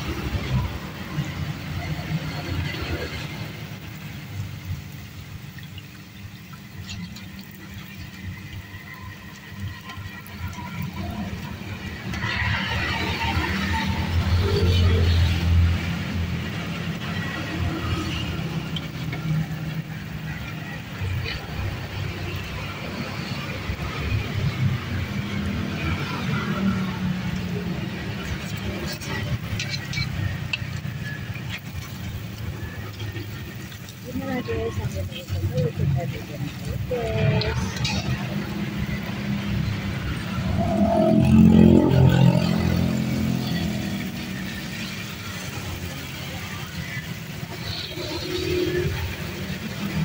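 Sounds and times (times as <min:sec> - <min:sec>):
oil sizzling and crackling: 0:00.0 - 0:50.0.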